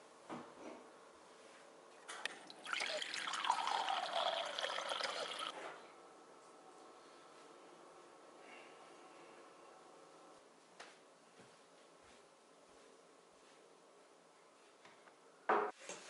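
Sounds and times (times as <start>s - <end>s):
water running into a glass: 2.5s - 5.5s.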